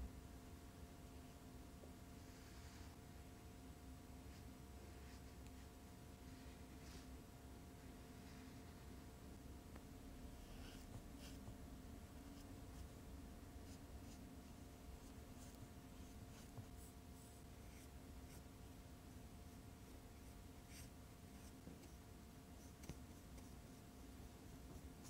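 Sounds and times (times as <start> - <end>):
low steady background hum: 0.0 - 25.0
paintbrush strokes on paper: 4.2 - 9.1, 10.3 - 25.0.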